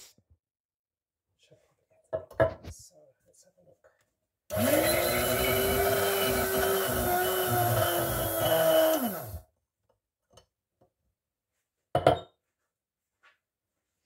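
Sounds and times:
electric frother motor whirring: 4.5s - 9.5s.

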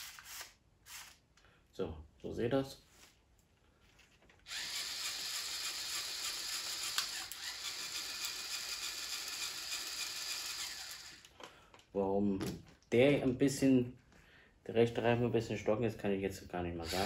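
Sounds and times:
toy motor whirring gear rattle: 0.0s - 1.2s, 4.4s - 11.3s.

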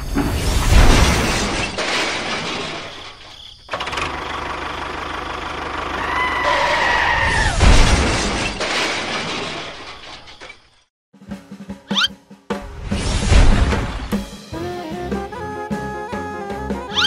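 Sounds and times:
loud crash: 0.0s - 3.3s, 7.2s - 10.7s, 12.6s - 14.2s
engine running: 3.7s - 6.4s.

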